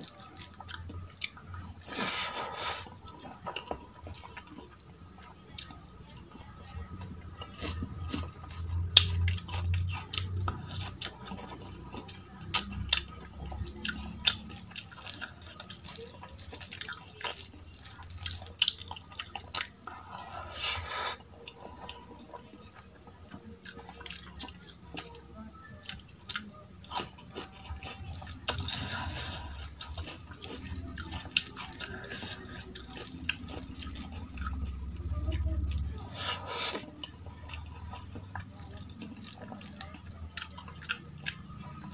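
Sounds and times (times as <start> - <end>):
wet chewing and lip smacks: 25.8 - 41.9.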